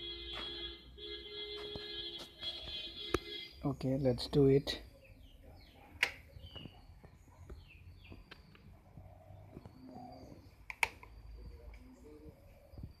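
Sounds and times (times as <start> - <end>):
faint bird chirps: 4.7 - 13.0.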